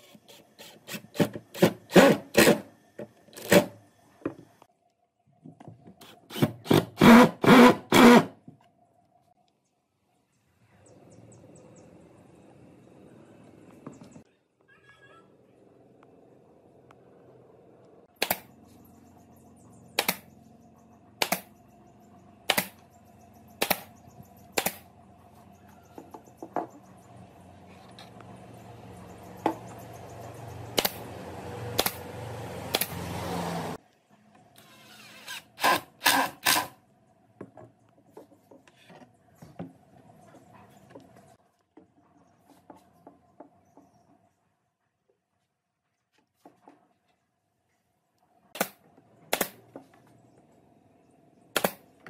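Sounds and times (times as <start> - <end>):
nail gun shots: 18.2 - 18.5, 20.0 - 20.3, 21.2 - 21.5, 22.5 - 22.8, 23.6 - 23.9, 24.6 - 24.9, 30.8 - 31.0, 31.8 - 32.0, 32.7 - 33.0, 35.3 - 36.8, 48.6 - 49.6, 51.5 - 51.9.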